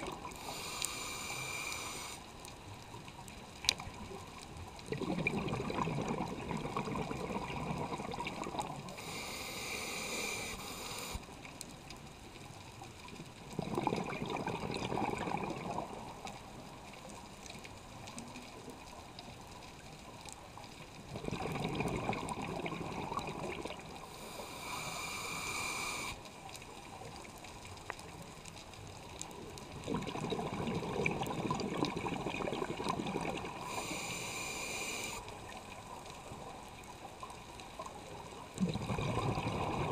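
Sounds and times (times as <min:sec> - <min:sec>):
regulator hissing inhalations: 0:00.4 - 0:02.2, 0:08.9 - 0:11.2, 0:24.1 - 0:26.2, 0:33.6 - 0:35.3
bubbling exhalations underwater: 0:04.9 - 0:08.8, 0:13.5 - 0:16.1, 0:21.1 - 0:24.0, 0:29.8 - 0:33.7, 0:38.5 - 0:39.9.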